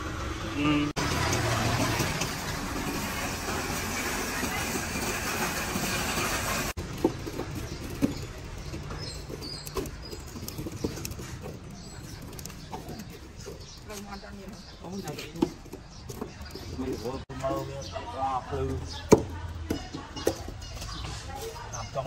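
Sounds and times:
poker scraping charcoal: 1.0s - 17.2s.

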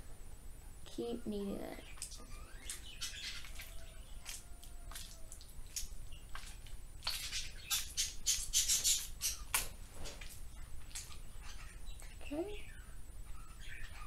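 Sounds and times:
slime squelching: 1.9s - 11.4s.

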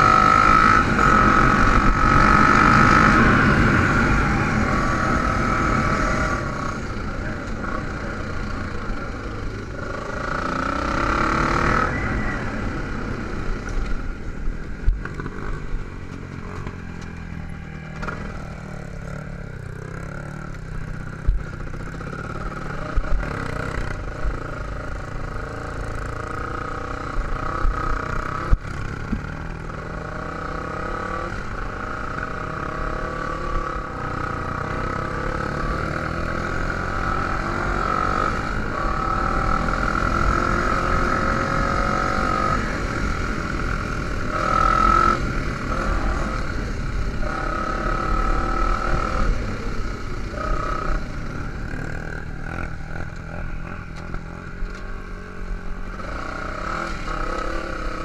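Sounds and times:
dirt bike engine running: 0.0s - 11.8s.

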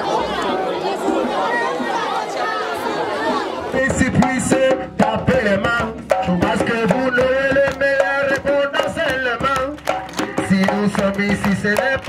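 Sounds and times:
quick hand-drum beat: 3.2s - 12.0s.

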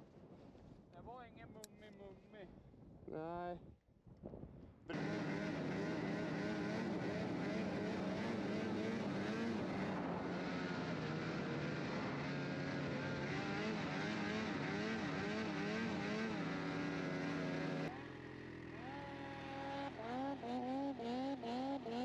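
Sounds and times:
snowmobile engine revving: 4.9s - 22.0s.

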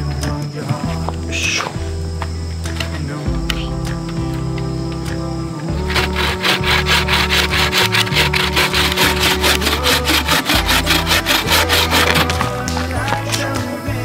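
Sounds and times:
bow saw cutting through a log: 5.8s - 12.8s.

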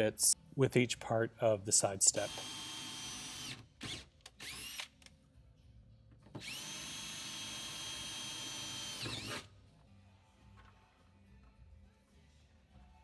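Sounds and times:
cordless drill boring into steel: 2.2s - 3.6s, 4.4s - 4.8s, 6.4s - 9.4s.

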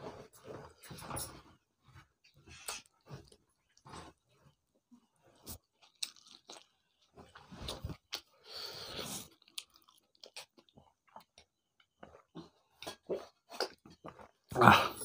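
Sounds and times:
faint chewing with wet clicks: 5.4s - 14.5s.

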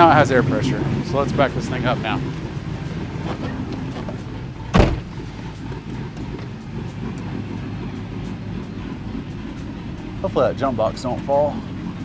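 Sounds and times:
engine idling with low rumble: 0.0s - 12.0s
loud thump: 4.7s - 5.2s.

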